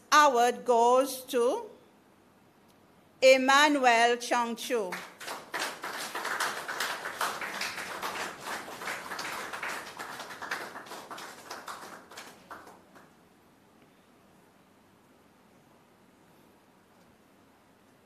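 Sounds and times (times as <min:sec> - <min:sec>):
people applauding: 0:04.9 - 0:13.2.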